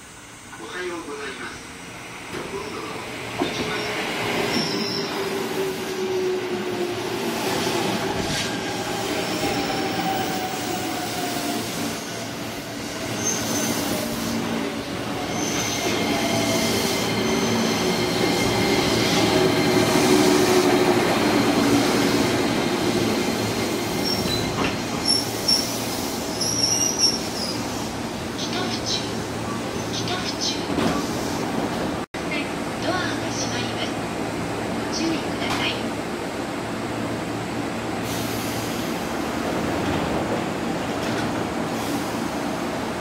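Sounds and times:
wheel and brake squeals: 3.6 - 5.3, 13.0 - 14.1, 23.9 - 27.7.

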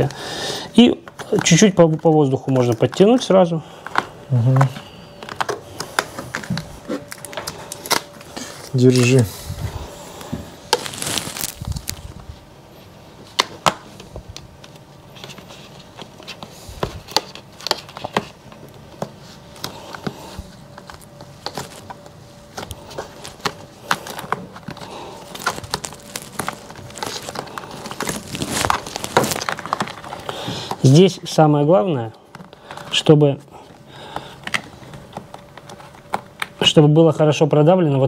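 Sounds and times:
plastic and film crackling: 0.0 - 37.3
soft rustling: 9.1 - 12.9, 25.0 - 30.3.

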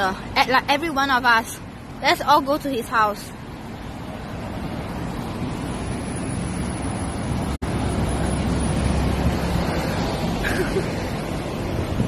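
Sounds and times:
street traffic: 0.0 - 12.0
wind buffeting microphone: 11.3 - 12.0.

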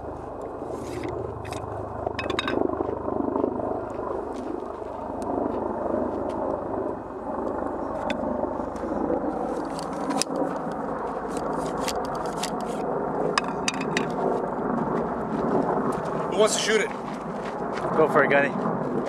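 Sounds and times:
steady rushing noise: 0.0 - 19.0
ramrod scraping and clicking: 11.4 - 12.8.

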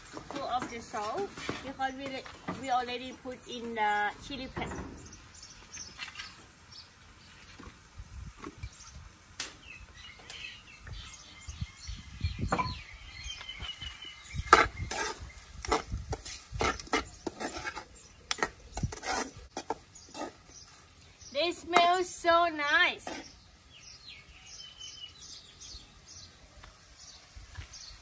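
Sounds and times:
birds chirping: 0.0 - 7.7, 8.6 - 28.0
metal ladle scraping steel wok: 14.5 - 20.5, 23.0 - 23.4.

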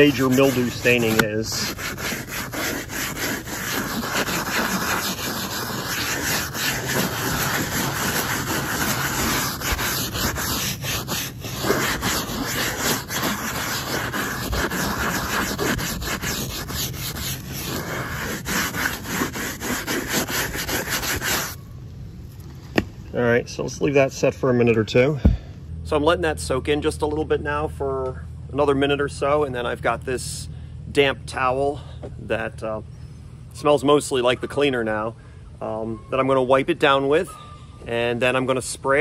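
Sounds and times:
brush scrubbing wet vinyl: 0.0 - 21.6.

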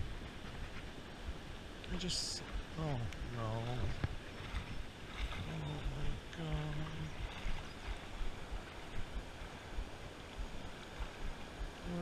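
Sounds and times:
shallow river water rushing: 0.0 - 12.0
wind rumbling on microphone: 0.0 - 12.0.

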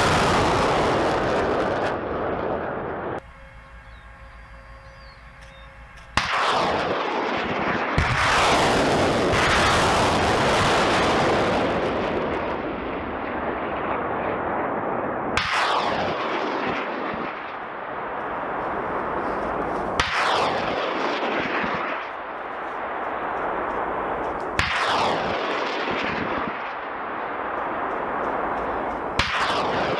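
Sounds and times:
rocket launch bang and roar: 0.0 - 3.2, 6.1 - 17.6, 18.8 - 22.1, 23.9 - 26.8, 28.0 - 29.9.

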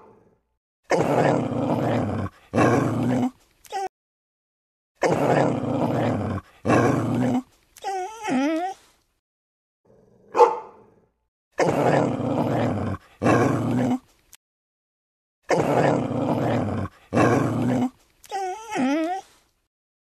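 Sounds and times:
dog growling: 0.0 - 3.4, 5.0 - 8.3, 9.9 - 14.1, 15.5 - 19.0
dog whining: 7.8 - 8.8, 18.3 - 19.4
dog barking: 10.2 - 11.0.

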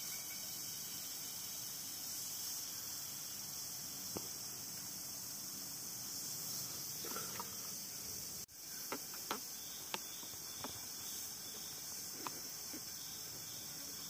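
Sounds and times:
insects chorus: 0.0 - 14.0.

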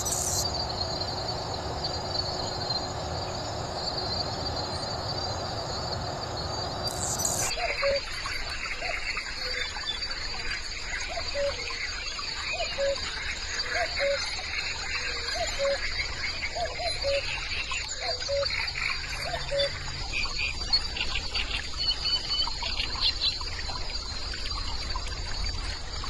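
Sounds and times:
insect trilling: 0.0 - 8.0
cuckoo calling: 0.0 - 8.2, 12.6 - 13.0
bird chirping: 0.0 - 10.1.

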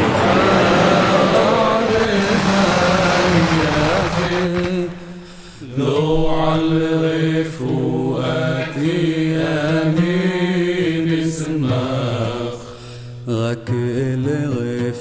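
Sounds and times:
steady low drone: 0.0 - 6.5
person chanting: 0.0 - 12.7.

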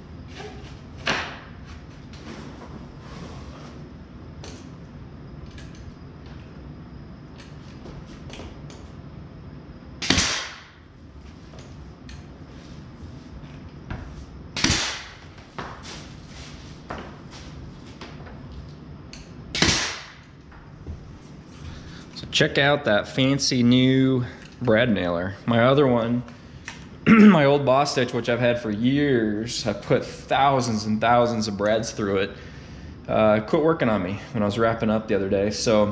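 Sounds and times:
nail gun shot: 10.0 - 10.8, 14.6 - 15.2, 19.5 - 20.3.

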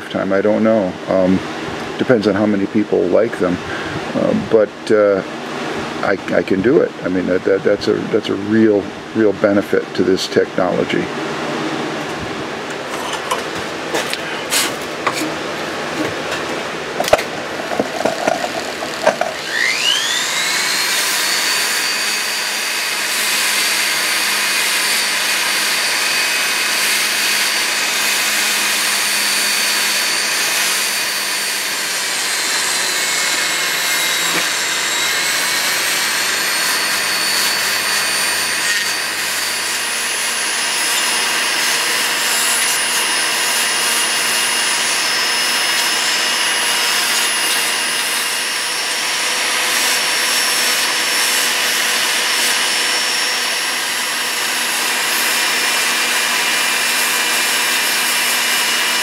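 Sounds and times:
rotary handpiece whining: 14.5 - 59.0
handling clicks and knocks: 16.0 - 19.4.

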